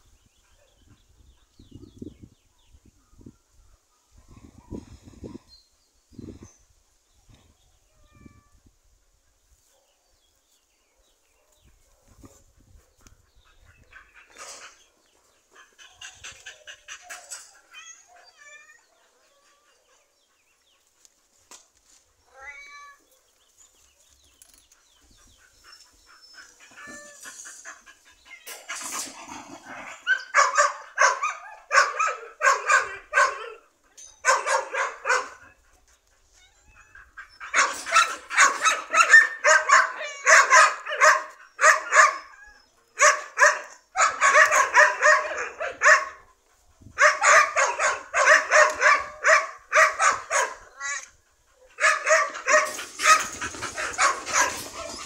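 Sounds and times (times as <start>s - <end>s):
dog barking sharply: 43.0s - 46.2s, 47.0s - 50.6s.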